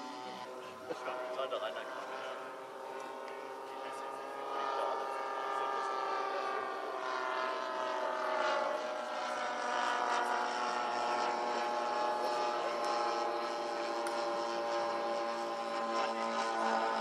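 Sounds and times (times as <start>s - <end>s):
model airplane propellers droning: 0.0s - 17.0s.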